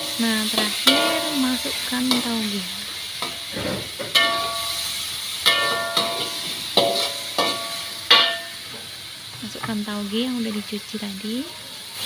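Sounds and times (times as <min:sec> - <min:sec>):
faint sizzle: 0:00.0 - 0:12.0
metal spatula knocking on wok: 0:00.8 - 0:01.4, 0:04.0 - 0:04.7, 0:05.4 - 0:08.6.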